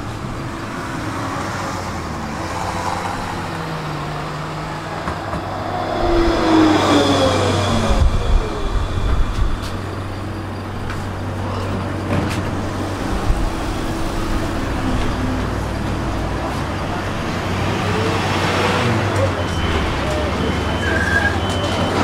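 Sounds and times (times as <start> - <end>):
electric tram motor whine: 0.0 - 21.4.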